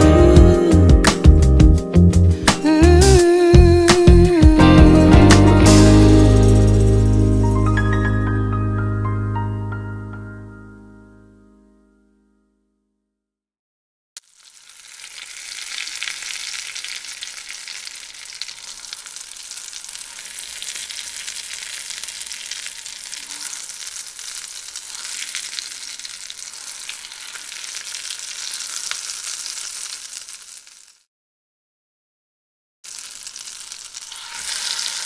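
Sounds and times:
tortilla sizzling in oil: 14.2s - 31.1s, 32.8s - 35.0s.

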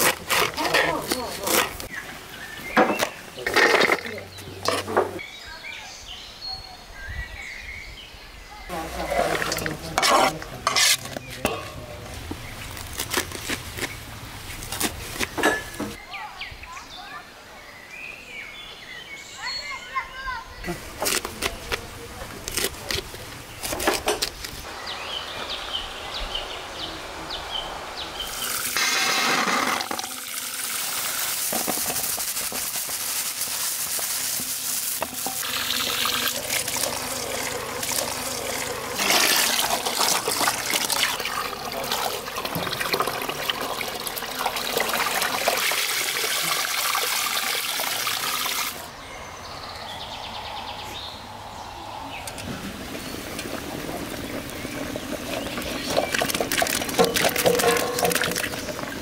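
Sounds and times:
water pouring into metal bowl: 28.3s - 48.8s, 53.2s - 59.0s.

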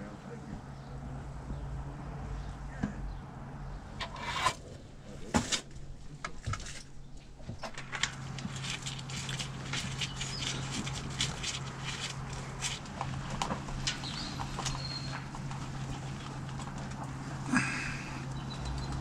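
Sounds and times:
tools clicking and knocking: 4.0s - 4.7s.

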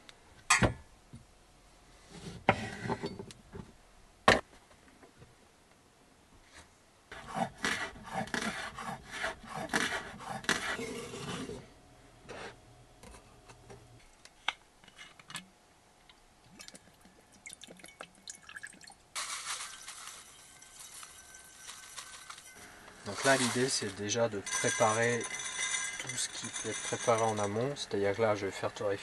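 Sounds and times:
sugar pouring into saucepan: 17.5s - 27.6s
bowls and utensils knocking: 24.4s - 27.6s.

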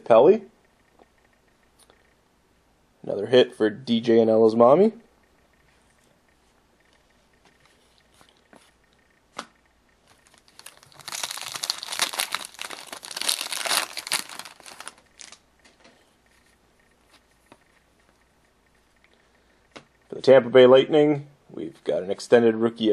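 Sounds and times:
foil wrapper tearing and crinkling: 10.2s - 15.4s.

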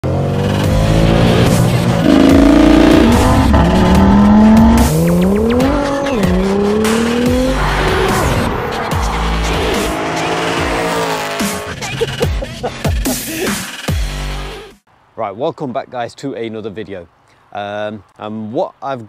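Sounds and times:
car engine accelerating hard: 0.0s - 12.1s.

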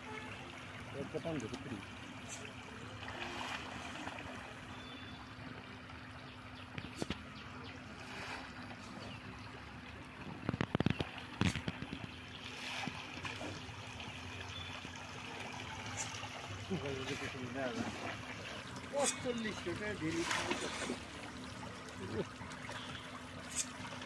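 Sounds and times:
sharp splashes: 0.0s - 5.1s, 10.6s - 24.0s
fish splashing in water: 0.0s - 5.3s, 10.3s - 24.0s.

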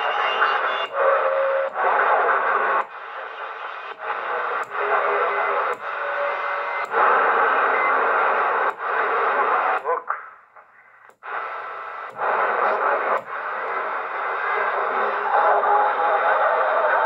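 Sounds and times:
faint radio whistles: 0.0s - 9.7s
radio static hiss: 0.0s - 17.0s.

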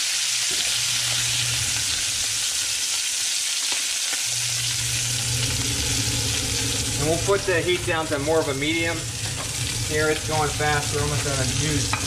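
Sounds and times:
fish sizzling in a frying pan: 0.0s - 12.0s
low hum: 4.3s - 12.0s.

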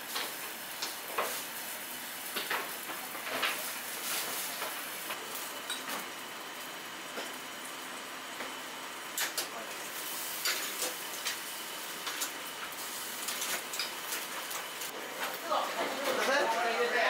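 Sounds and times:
steaming pots hissing: 0.0s - 6.2s.

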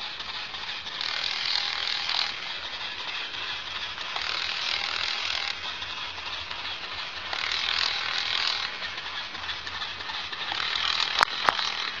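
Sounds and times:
toy motor whirring and ticking: 0.0s - 12.0s
sharp clicks: 6.2s - 12.0s.

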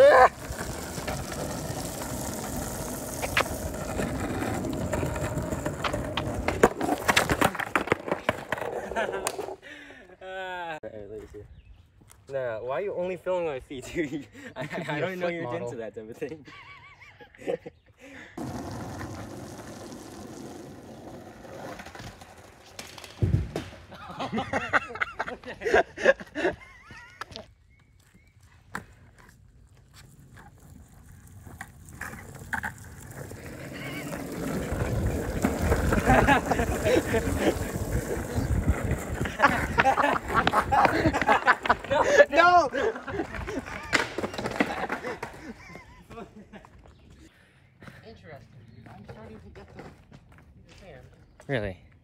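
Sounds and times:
people crying out: 0.0s - 0.4s
wheels rolling over wet asphalt: 0.0s - 9.6s, 18.4s - 23.7s, 29.2s - 45.4s
skateboard knocking: 0.3s - 9.6s, 18.4s - 23.7s, 32.1s - 42.0s, 43.2s - 45.4s.

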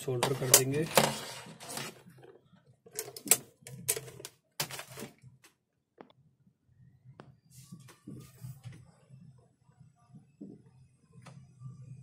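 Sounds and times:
tools clicking and knocking: 2.9s - 4.8s.

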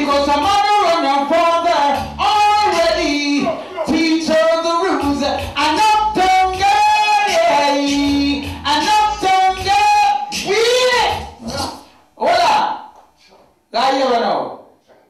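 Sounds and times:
man singing through microphone: 0.0s - 11.3s.

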